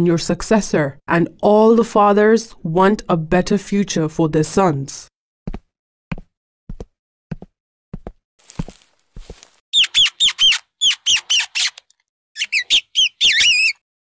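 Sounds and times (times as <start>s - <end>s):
footsteps: 8.0s - 9.6s
rats squeaking: 9.8s - 13.8s.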